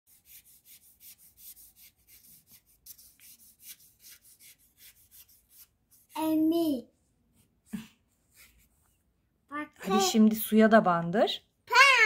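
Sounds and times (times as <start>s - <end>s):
paintbrush swishing on paper: 0.1s - 6.2s, 7.3s - 9.1s.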